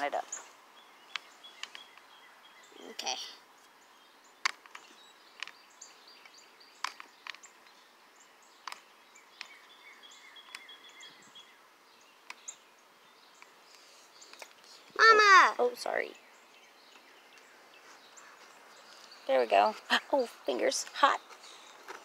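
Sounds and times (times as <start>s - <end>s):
faint outdoor ambience: 0.0s - 22.0s
faint bird chirps: 0.2s - 21.8s
small clicks and taps: 1.1s - 2.1s, 4.4s - 5.6s, 6.2s - 7.8s, 8.6s - 9.6s, 13.4s - 14.6s.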